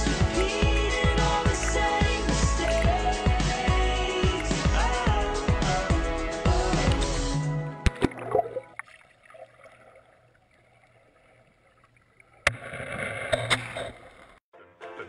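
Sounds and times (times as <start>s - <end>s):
water sloshing and gurgling: 6.7s - 14.4s.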